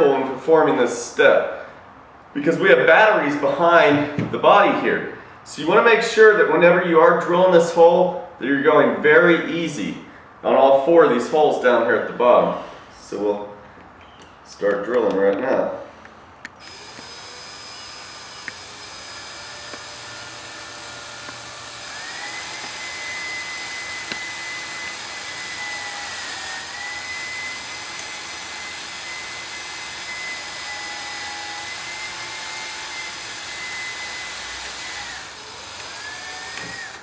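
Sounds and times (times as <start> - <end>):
cordless drill whining: 16.5 - 37.0
drill boring through metal: 16.6 - 37.0.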